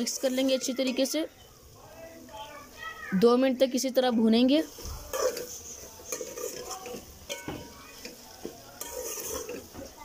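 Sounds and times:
metal spoon scraping a pot: 0.0 - 1.2, 4.7 - 9.9
meat sizzling in oil: 0.0 - 10.0.

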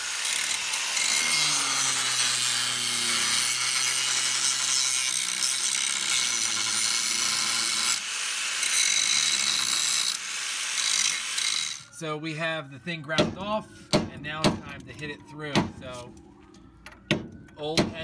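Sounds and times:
angle grinder grinding metal: 0.0 - 12.0.

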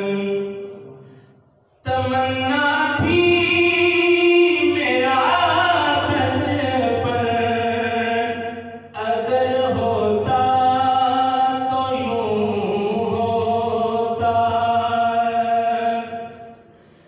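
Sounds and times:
man singing unaccompanied: 0.0 - 0.8, 1.8 - 16.5.

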